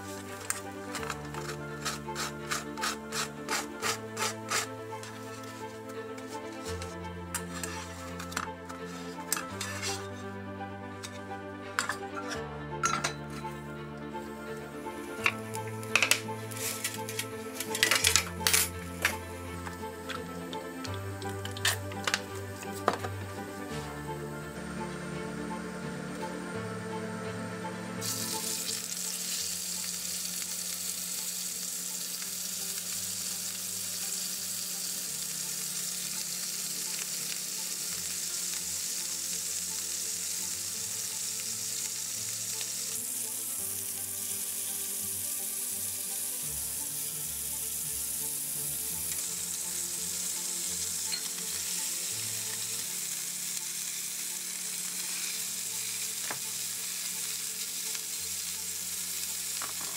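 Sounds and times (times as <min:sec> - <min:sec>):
steaks sizzling in hot oil: 0:00.0 - 0:05.6, 0:14.3 - 0:22.8, 0:28.0 - 0:59.9.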